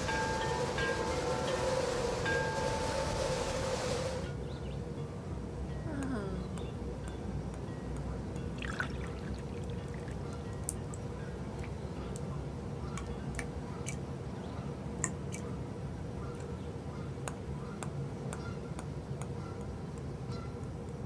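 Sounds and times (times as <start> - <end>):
low ambient hum: 0.0 - 21.0
water dripping: 7.5 - 12.3.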